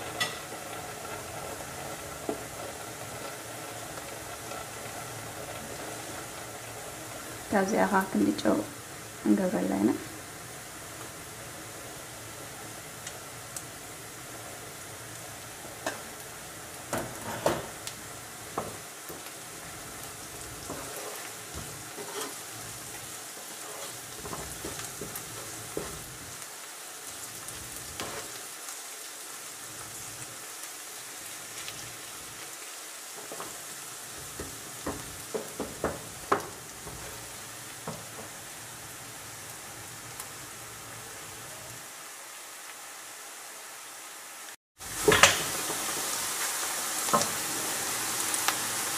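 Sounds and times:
spoon scraping and knocking pan: 0.0 - 7.3, 15.6 - 16.2, 16.9 - 17.9, 18.5 - 26.3, 27.5 - 28.4, 33.1 - 38.4, 45.0 - 45.9
vegetables sizzling in oil: 0.0 - 48.9.

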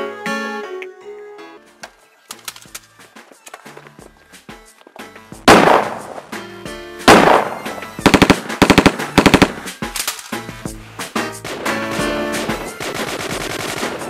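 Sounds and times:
background music: 0.0 - 14.0
automatic gunfire bursts: 5.5 - 6.2, 7.1 - 10.3, 12.7 - 14.0
gunshots with ringing decay: 5.5 - 6.4, 7.1 - 10.2.

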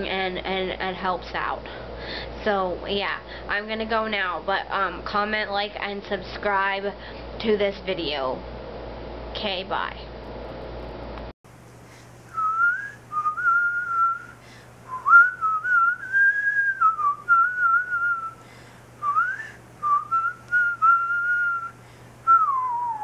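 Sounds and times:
person whistling a tune: 12.3 - 14.3, 14.9 - 18.4, 19.0 - 21.7, 22.3 - 23.0.

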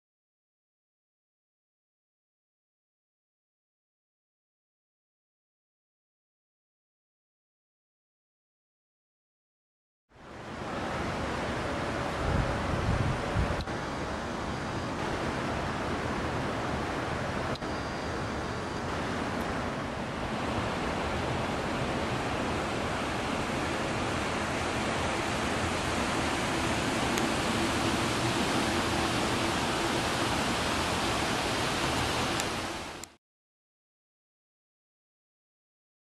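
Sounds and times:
outdoor rushing noise: 10.8 - 33.1.

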